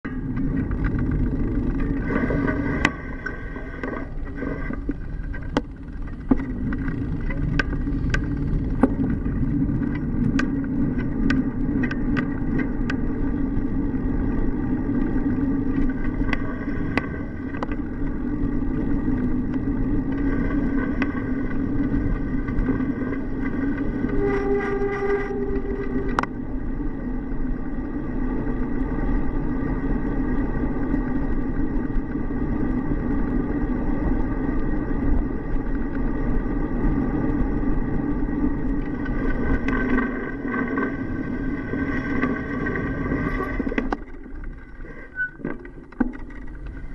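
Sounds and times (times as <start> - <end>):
tyres rumbling: 0.0 - 46.9
wind: 0.0 - 46.9
bike and mount clicks and knocks: 4.9 - 13.1, 45.4 - 46.9.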